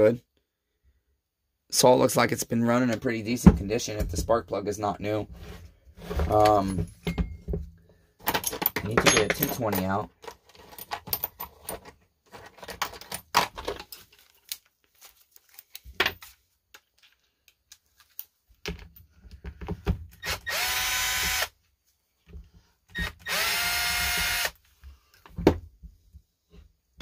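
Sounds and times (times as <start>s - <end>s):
metal tools clicking and rattling: 8.2s - 14.0s.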